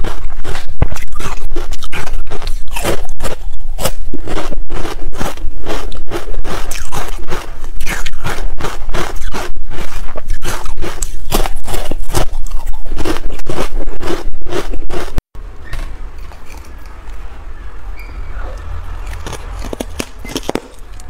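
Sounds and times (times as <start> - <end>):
ice crunching being chewed: 0.0 - 15.2, 15.8 - 17.3, 19.0 - 21.0.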